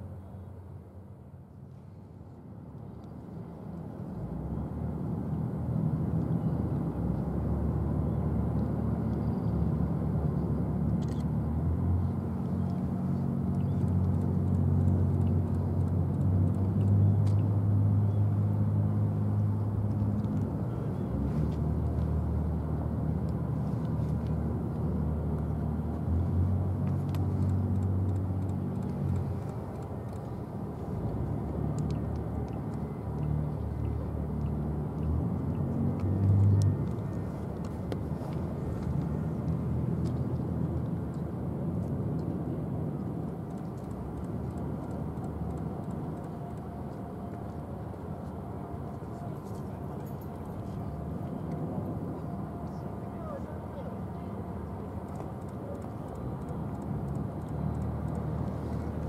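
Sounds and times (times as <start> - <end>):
low engine rumble: 0.0 - 59.0
faint clicks: 31.0 - 41.2, 55.0 - 59.0.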